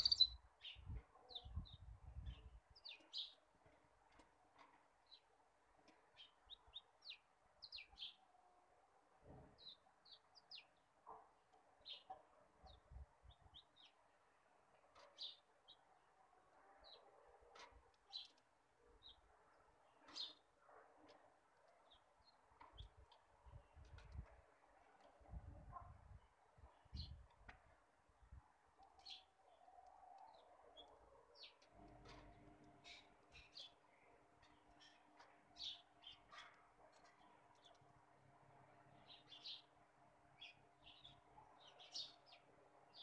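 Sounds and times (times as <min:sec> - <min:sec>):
small birds chirping: 0:00.0 - 0:04.3, 0:28.8 - 0:37.9.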